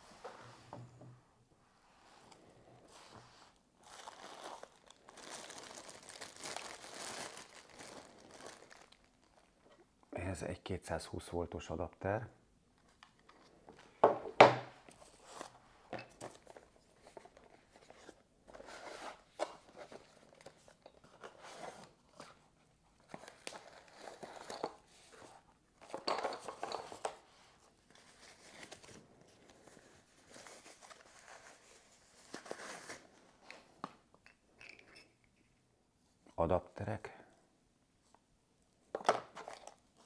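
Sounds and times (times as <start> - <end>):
tissue paper and cardboard crinkling: 3.0 - 9.5, 26.9 - 33.1.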